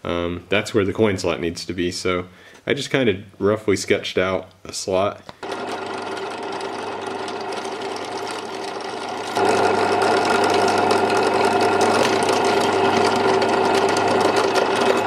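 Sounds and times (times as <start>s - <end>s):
drill press motor running: 5.4s - 15.0s.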